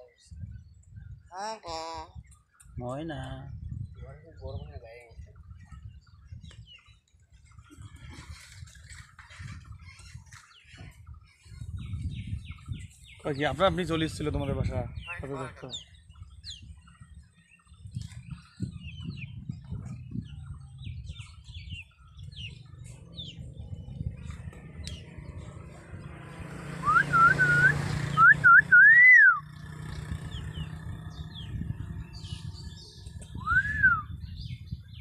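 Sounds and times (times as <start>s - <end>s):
myna whistling: 26.8s - 29.4s, 33.3s - 34.2s.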